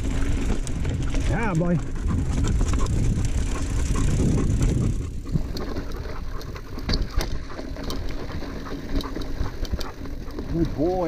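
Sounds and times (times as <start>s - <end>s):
wind on microphone: 0.0s - 7.8s
bike rattling: 0.0s - 11.0s
bike tyres rumbling on dirt: 0.0s - 11.0s.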